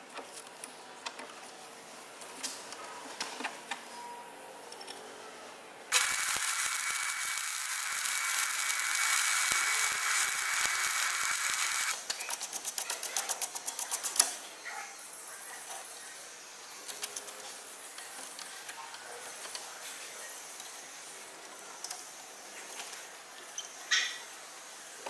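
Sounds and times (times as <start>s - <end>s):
arc welding crackling sizzle: 5.9s - 12.3s
workshop noise: 5.9s - 12.3s.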